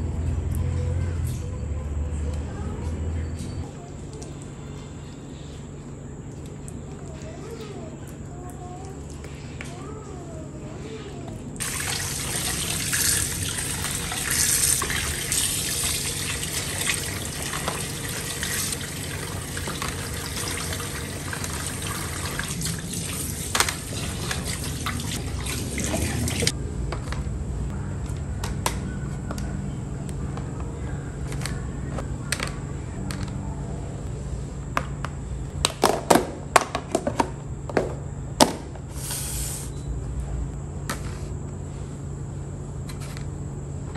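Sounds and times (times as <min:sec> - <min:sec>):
tap water running into plastic basin: 0:11.6 - 0:26.5
plastic containers knocking and clicking: 0:34.8 - 0:38.7.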